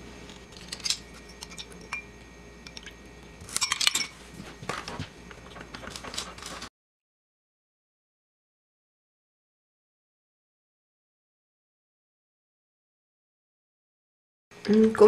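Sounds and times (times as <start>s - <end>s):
utensils clinking against ceramic bowl: 0.5s - 2.1s, 3.5s - 4.2s.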